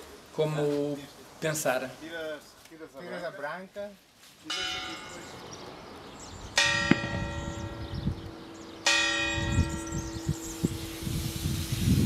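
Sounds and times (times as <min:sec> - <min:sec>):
church bell ringing: 0:04.5 - 0:05.6, 0:06.6 - 0:11.8.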